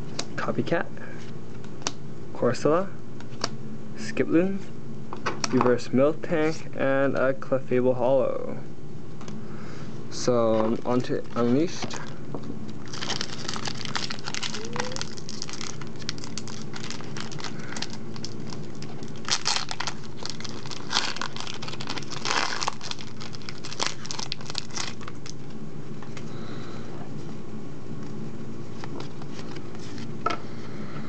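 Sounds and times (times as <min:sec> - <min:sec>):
foil wrapper crinkling and tearing: 0:12.8 - 0:25.5.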